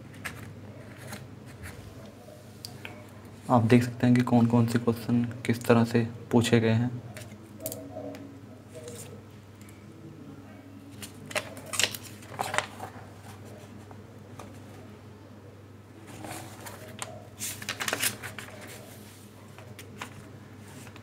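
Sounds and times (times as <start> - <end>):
paper pages rustling: 0.0 - 1.8, 10.9 - 14.9, 16.0 - 21.0.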